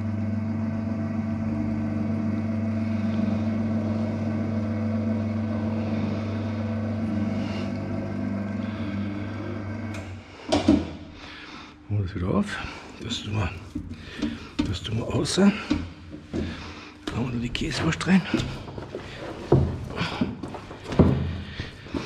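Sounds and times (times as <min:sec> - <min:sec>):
electric motor humming: 0:00.0 - 0:11.0.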